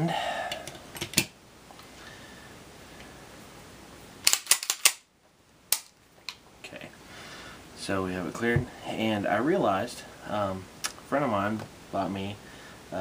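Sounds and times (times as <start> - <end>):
pistol slide metallic clacks: 4.2 - 5.0.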